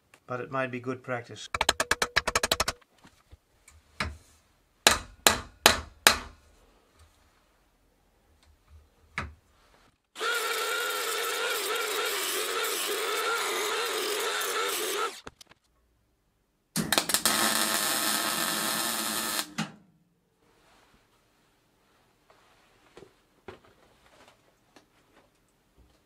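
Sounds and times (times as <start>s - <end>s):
welder arc buzzing: 10.2s - 15.3s, 16.8s - 19.7s.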